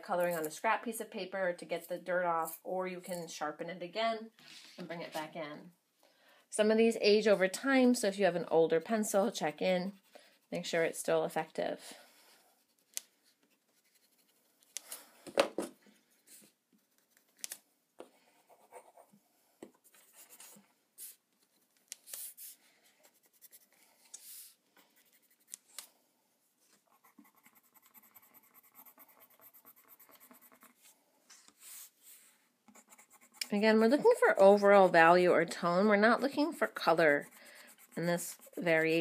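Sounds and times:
pencil scratching on paper: 0:12.2 - 0:14.8, 0:18.3 - 0:19.2, 0:19.8 - 0:25.6, 0:26.8 - 0:30.9, 0:31.5 - 0:35.3, 0:36.0 - 0:39.0.

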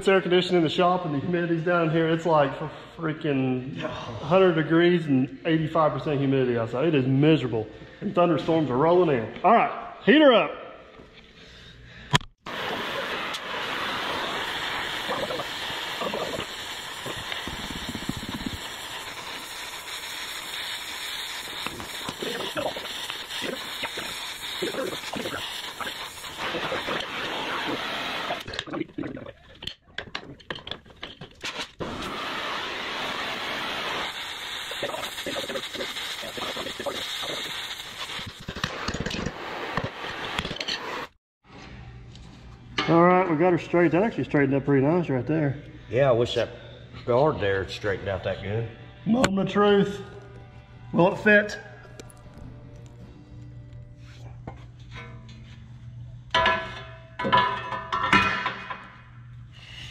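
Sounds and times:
gas torch flame hissing: 0:12.5 - 0:28.5, 0:31.8 - 0:41.1.

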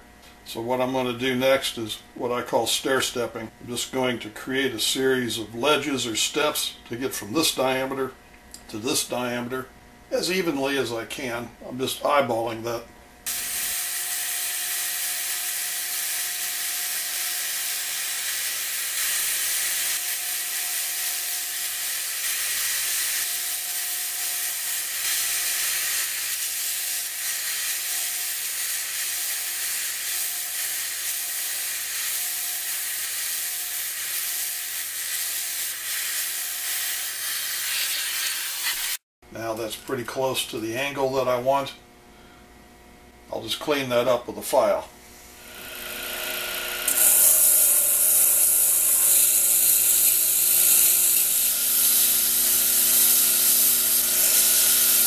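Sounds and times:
lathe tool cutting wood hiss: 0:13.3 - 0:39.0, 0:45.2 - 0:55.0
lathe machine whine: 0:45.4 - 0:55.0.

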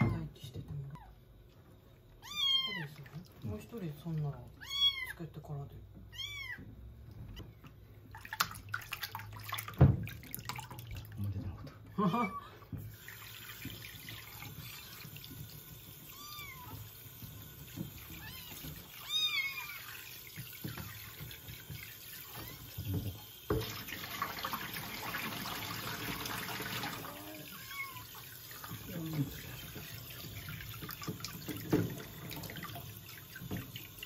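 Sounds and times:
kitten meowing: 0:02.2 - 0:02.9, 0:04.6 - 0:05.2, 0:06.1 - 0:06.7, 0:16.1 - 0:16.8, 0:18.2 - 0:20.0, 0:27.1 - 0:28.1
shower water splashing into basin: 0:02.2 - 0:05.1, 0:07.4 - 0:34.0.

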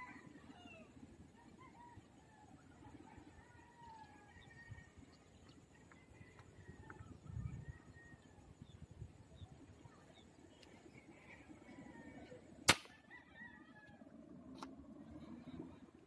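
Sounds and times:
airgun firing crack: 0:12.6 - 0:13.0.

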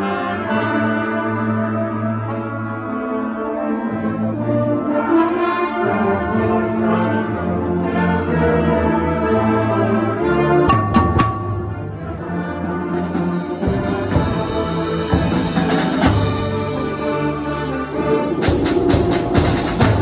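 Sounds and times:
brass chords: 0:00.0 - 0:20.0
concert band playing: 0:10.5 - 0:20.0.

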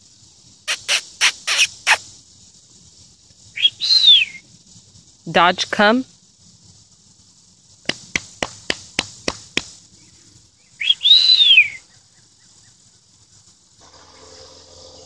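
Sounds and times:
sharp tongue clicks: 0:00.7 - 0:02.0.

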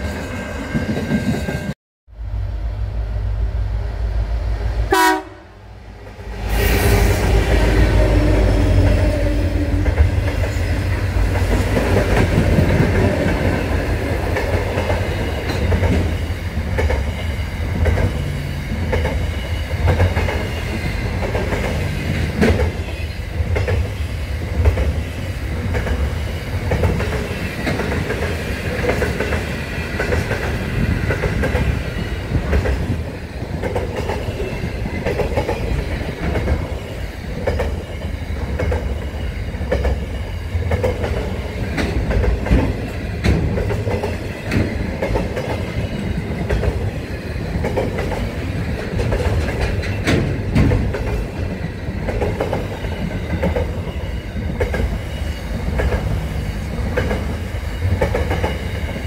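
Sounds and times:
freight train rumbling past: 0:00.0 - 0:59.0
train wheels clicking: 0:06.0 - 0:59.0.

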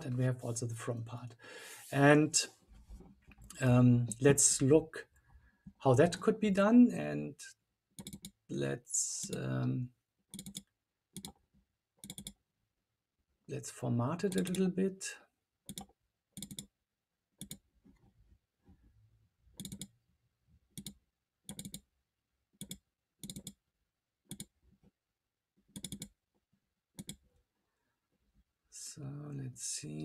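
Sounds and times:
mouse and keyboard clicks: 0:08.0 - 0:08.4, 0:10.3 - 0:10.6, 0:11.2 - 0:11.4, 0:12.0 - 0:12.4, 0:15.7 - 0:16.7, 0:19.6 - 0:19.9, 0:20.8 - 0:21.8, 0:22.6 - 0:23.6, 0:24.3 - 0:24.5, 0:25.8 - 0:26.1, 0:27.0 - 0:27.2.

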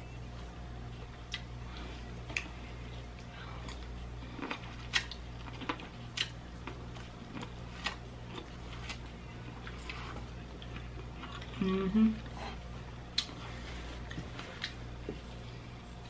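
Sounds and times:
steady low hum: 0:00.0 - 0:16.0
chewing corn on the cob: 0:02.2 - 0:11.6.

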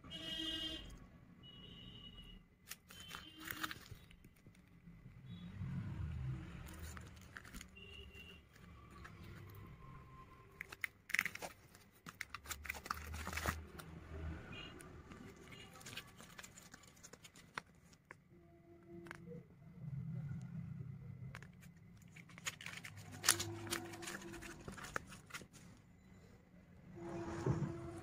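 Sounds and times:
card clicks and crinkles: 0:02.6 - 0:04.8, 0:06.5 - 0:09.6, 0:10.5 - 0:14.1, 0:14.8 - 0:18.3, 0:21.2 - 0:25.8
paper rustling and crackling: 0:02.6 - 0:04.8, 0:06.5 - 0:09.7, 0:10.6 - 0:14.0, 0:15.1 - 0:18.2, 0:21.3 - 0:25.9.

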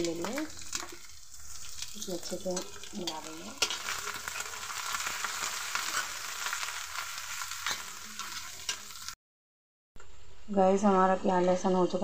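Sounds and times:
metal spatula scraping pan: 0:00.0 - 0:06.2
paste sizzling in hot oil: 0:00.0 - 0:09.2.

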